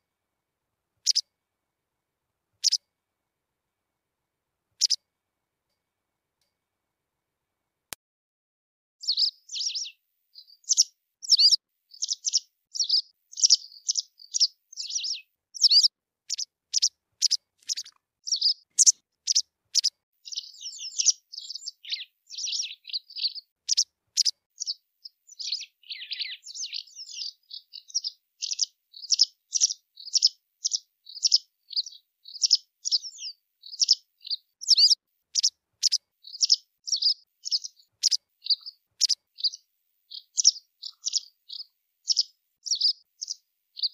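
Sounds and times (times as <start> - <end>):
bird chirping and twittering: 1.0 - 1.2, 9.0 - 43.9.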